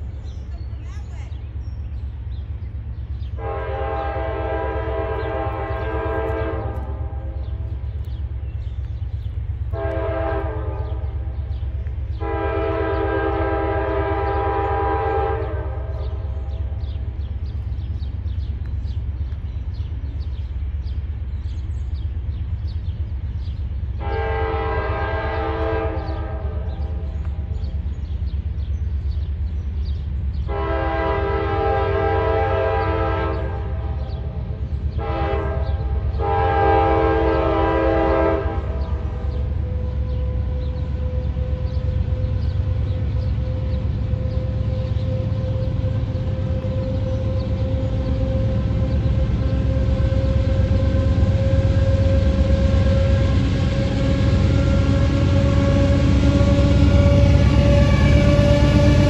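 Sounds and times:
locomotive air horn blasts: 3.4s - 7.4s, 9.7s - 11.5s, 12.1s - 16.7s, 24.0s - 26.8s, 30.5s - 34.2s, 34.9s - 59.0s.

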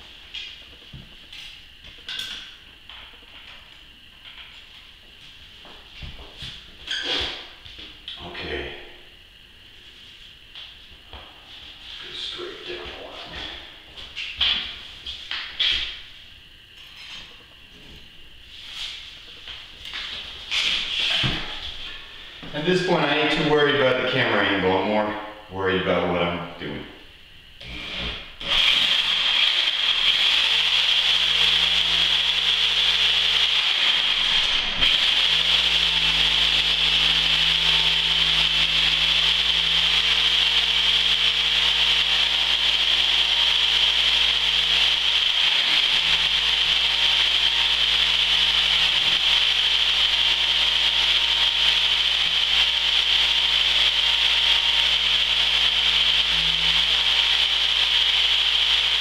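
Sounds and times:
reciprocating saw cutting mortar: 27.6s - 59.0s.

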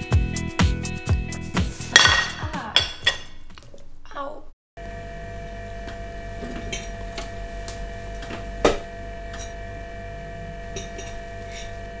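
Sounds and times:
steady low hum: 4.8s - 12.0s.

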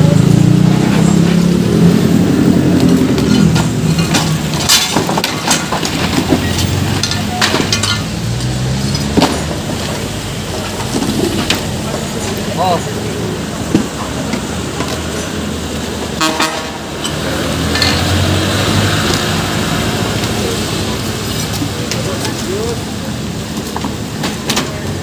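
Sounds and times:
debris clinking and clattering: 2.7s - 12.5s.

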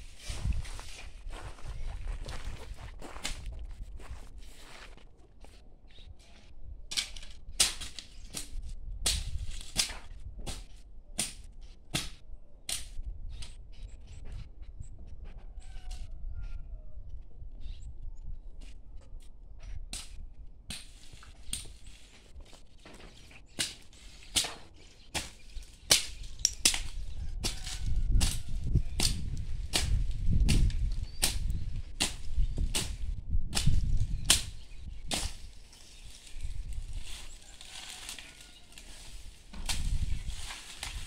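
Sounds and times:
blade swishing through grass: 31.3s - 41.0s.

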